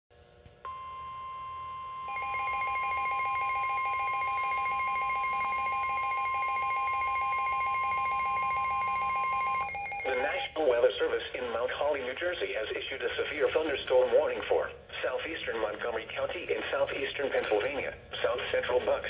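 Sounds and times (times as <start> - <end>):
steady warning alarm tone: 0.7 - 11.1.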